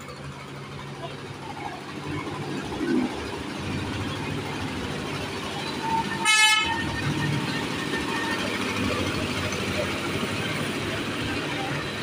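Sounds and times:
train running: 0.0s - 12.0s
miniature train horn toot: 5.9s - 6.9s.

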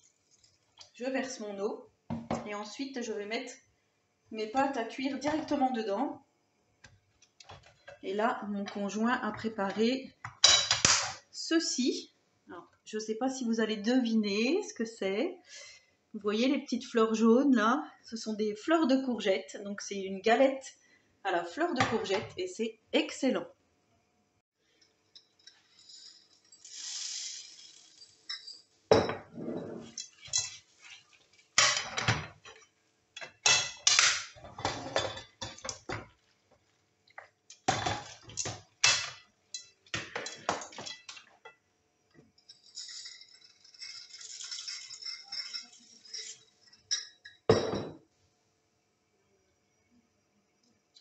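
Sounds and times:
hot pan hissing: 26.5s - 28.4s.

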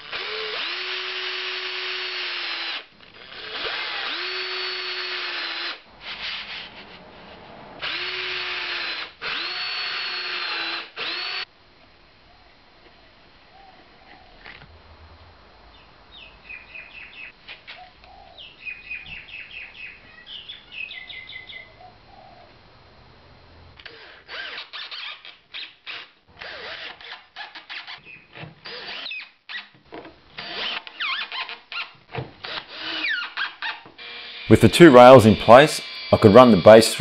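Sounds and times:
cordless drill driving screws: 0.0s - 6.9s, 7.8s - 11.5s, 23.8s - 29.7s, 30.4s - 36.6s
birds chirping: 15.6s - 22.7s, 28.0s - 28.4s.

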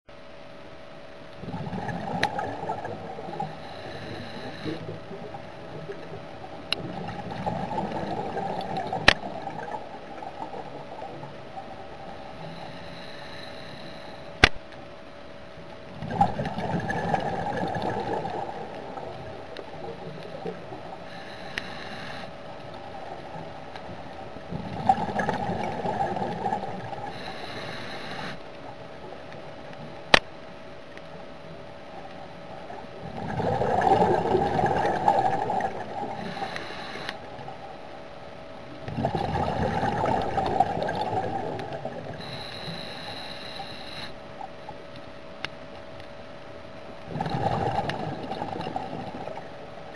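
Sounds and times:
steady hum: 0.1s - 49.9s
regulator breathing hiss: 3.4s - 4.8s, 12.4s - 14.4s, 21.1s - 22.4s, 27.1s - 28.4s, 36.2s - 37.3s, 42.2s - 44.2s
bubbling exhalations: 47.1s - 49.4s.

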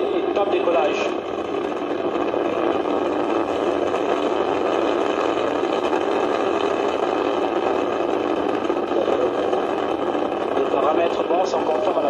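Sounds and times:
rocket engines roaring: 0.0s - 12.0s.

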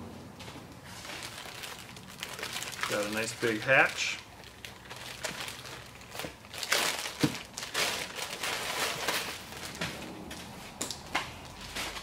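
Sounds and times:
plastic bag crinkling: 0.8s - 9.8s.

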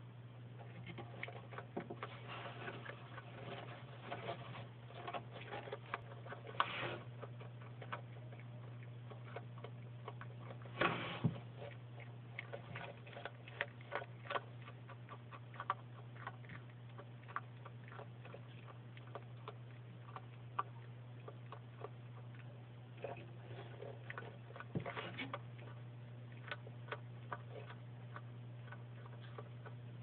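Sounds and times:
steady low hum: 0.0s - 30.0s
lizard chewing carrot crunches: 0.6s - 30.0s.

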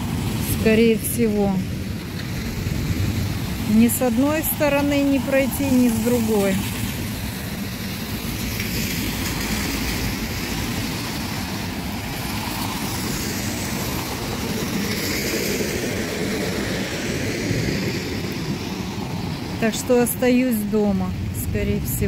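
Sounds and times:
heavy rain: 0.0s - 22.0s
water running over street: 0.0s - 22.0s.

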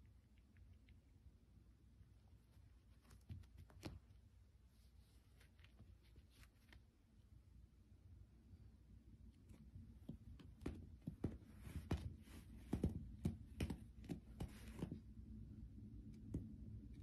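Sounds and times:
claws rustling on carpet: 2.3s - 7.1s.

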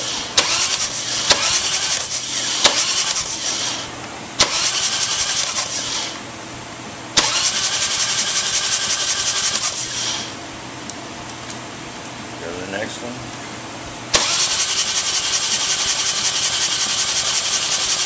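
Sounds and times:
engine cranking with electric starter: 0.0s - 6.2s, 7.2s - 10.4s, 14.1s - 18.0s
sharp starter click: 0.4s - 3.2s, 4.4s - 5.7s, 7.2s - 7.6s, 14.1s - 14.7s.

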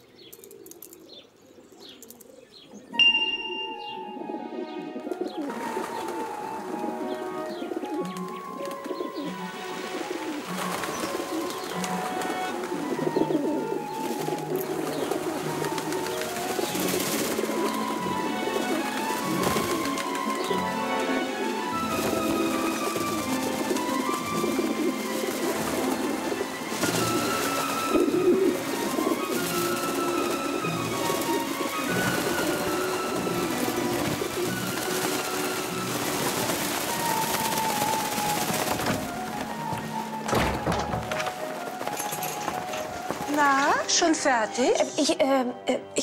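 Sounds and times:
pigeons cooing: 0.3s - 3.0s, 3.9s - 44.2s
film music: 2.7s - 46.0s.

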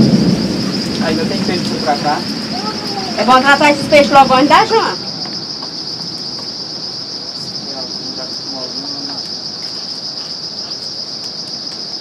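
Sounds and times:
night insects chorus: 0.0s - 12.0s
faint distant voices: 1.0s - 5.5s.

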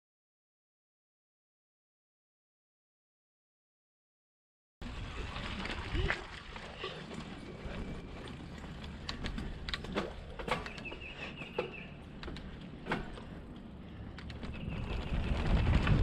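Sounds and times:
bike tyres rolling on dirt trail: 4.8s - 16.0s
bike clicks and knocks: 7.7s - 16.0s
low rumble: 12.0s - 16.0s.

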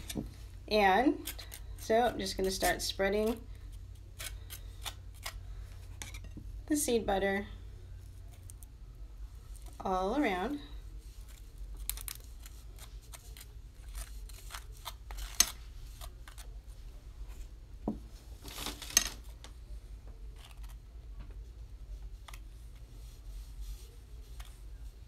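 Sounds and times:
butter knife scraping: 0.0s - 6.4s, 11.1s - 16.6s.

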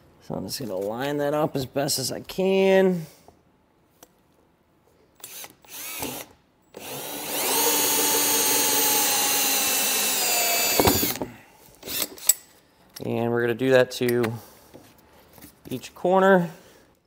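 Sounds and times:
cordless drill with hole saw: 5.2s - 12.2s.

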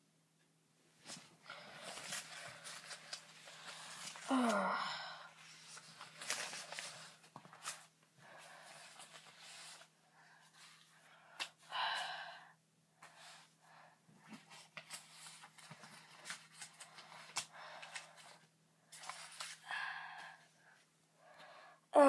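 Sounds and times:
soft breathing: 1.0s - 21.9s
paper bills rustling: 1.1s - 4.7s, 5.4s - 7.9s, 19.0s - 19.7s.

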